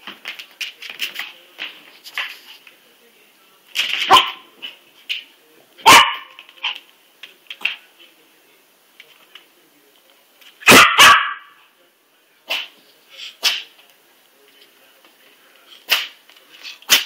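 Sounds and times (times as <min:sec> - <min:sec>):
dog barking: 0:04.0 - 0:04.5, 0:05.8 - 0:06.4, 0:10.6 - 0:11.6
dog yipping: 0:10.7 - 0:11.4.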